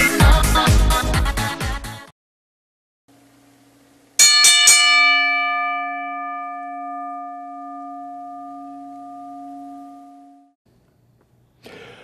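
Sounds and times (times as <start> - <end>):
boxing ring bell ringing: 4.2 - 10.6.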